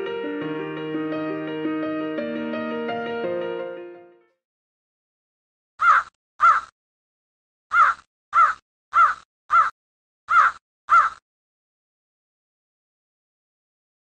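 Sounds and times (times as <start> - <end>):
crow cawing: 5.8 - 6.7, 7.7 - 11.2.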